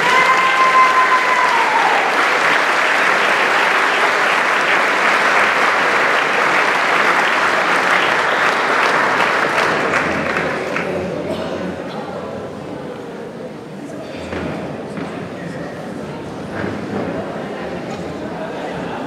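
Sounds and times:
audience applauding: 0:00.0 - 0:11.2.

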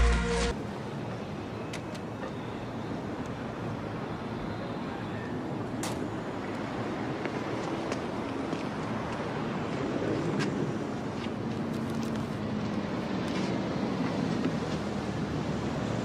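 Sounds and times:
music: 0:00.0 - 0:00.5
city street traffic: 0:00.0 - 0:16.0.

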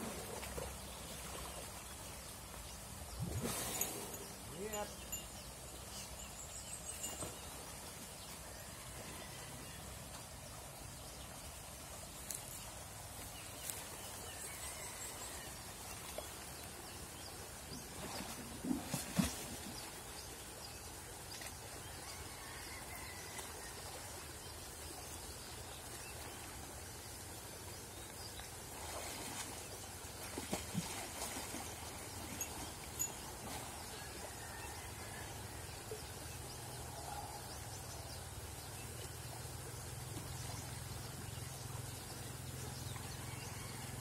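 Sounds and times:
water sloshing and churning: 0:27.9 - 0:34.4.

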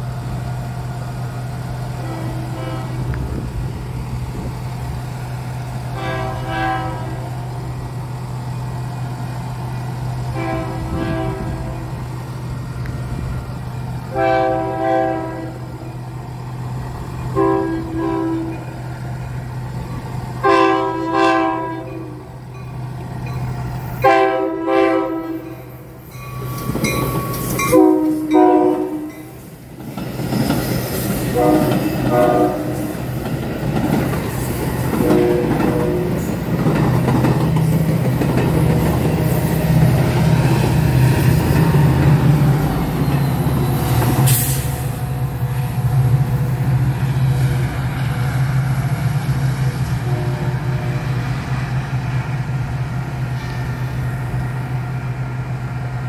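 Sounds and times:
train engine drone: 0:00.0 - 0:56.0
train horn chords: 0:01.9 - 0:03.4, 0:05.9 - 0:07.5, 0:10.3 - 0:12.2, 0:14.1 - 0:16.0, 0:17.3 - 0:18.8, 0:20.4 - 0:22.4, 0:24.0 - 0:26.0, 0:27.6 - 0:29.4, 0:31.3 - 0:33.0, 0:34.9 - 0:36.3, 0:49.8 - 0:51.3
wheels on rails: 0:25.5 - 0:28.3, 0:29.1 - 0:50.0.

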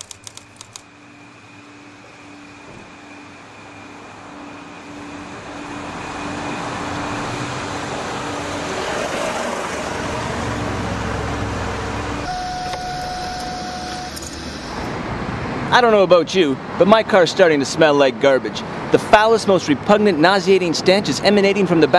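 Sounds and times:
car engine passing by: 0:05.9 - 0:12.2
steady tone: 0:12.2 - 0:15.2.

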